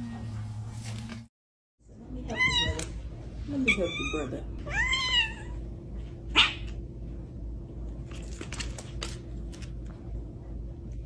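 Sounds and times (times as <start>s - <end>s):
steady low hum: 0.0s - 11.0s
cat crying: 3.6s - 5.6s.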